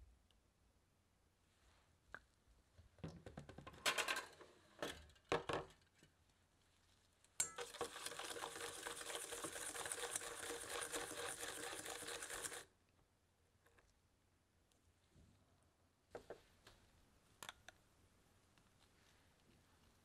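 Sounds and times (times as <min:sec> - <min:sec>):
whisk rattling in metal bowl: 0:07.4 - 0:12.7.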